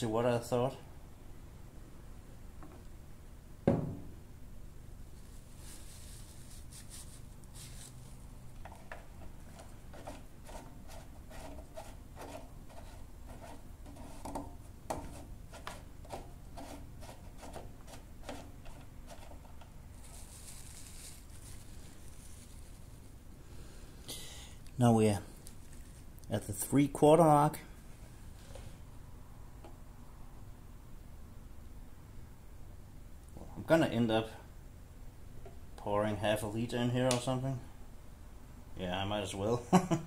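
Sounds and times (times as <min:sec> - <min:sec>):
thump: 0:03.6 - 0:04.1
dipstick clicking and scraping in tube: 0:08.6 - 0:19.7.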